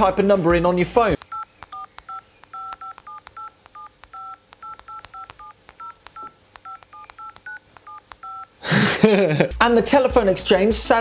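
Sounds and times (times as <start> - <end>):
telephone keypad tones: 1.2 - 8.6.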